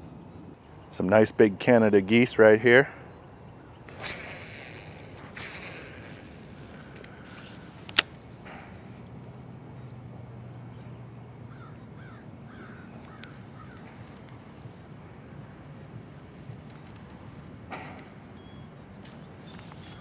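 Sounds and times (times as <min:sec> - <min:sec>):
sharp click: 0:07.8 - 0:08.7.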